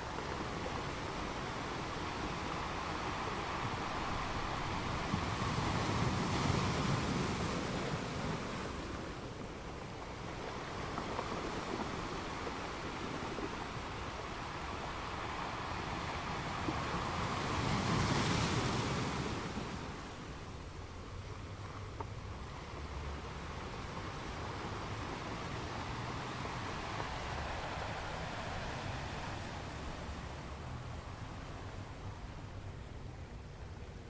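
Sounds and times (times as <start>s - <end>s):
small waves breaking on sand: 0.0s - 34.0s.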